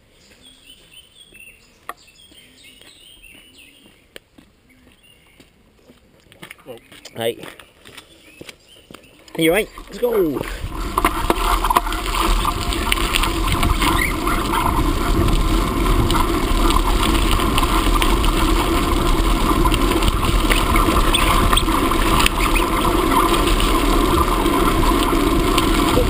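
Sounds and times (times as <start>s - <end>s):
bicycle rolling with rattles: 9.4s - 26.0s.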